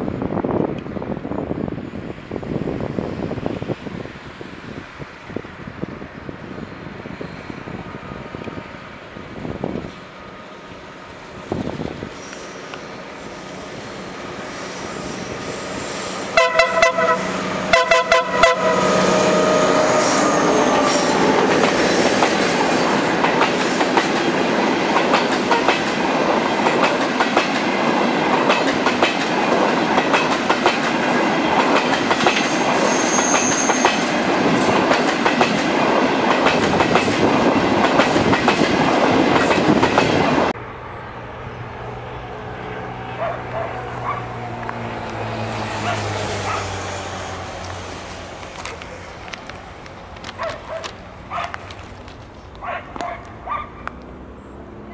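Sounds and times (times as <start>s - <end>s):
train passing with heavy rumble: 0.0s - 54.9s
train horn blasts: 16.2s - 21.1s
wheels clicking over rail joints: 47.5s - 54.3s.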